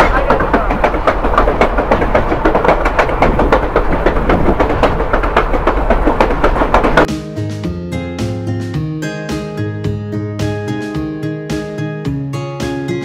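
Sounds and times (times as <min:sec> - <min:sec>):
passenger train running on rails: 0:00.0 - 0:07.1
wheels clattering over track: 0:00.0 - 0:07.1.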